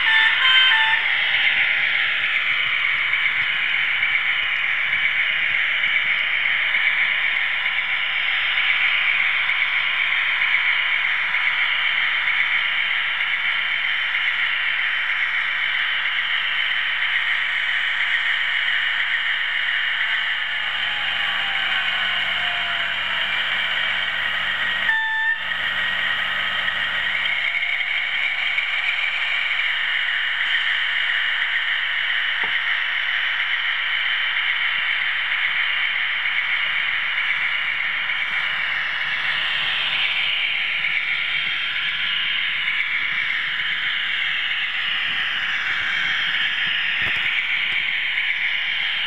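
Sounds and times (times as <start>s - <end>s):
model train horn toot: 0.0s - 1.2s, 24.8s - 25.6s
model train whirring on track: 0.0s - 49.0s.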